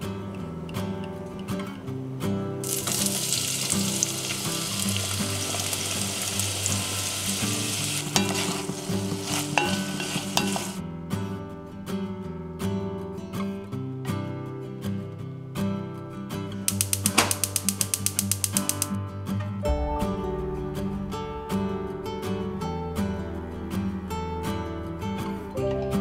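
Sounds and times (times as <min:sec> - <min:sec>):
acoustic guitar music: 0:00.0 - 0:26.0
vegetables sizzling in oil: 0:02.6 - 0:10.8, 0:16.7 - 0:18.9
sharp clicks: 0:16.7 - 0:19.0.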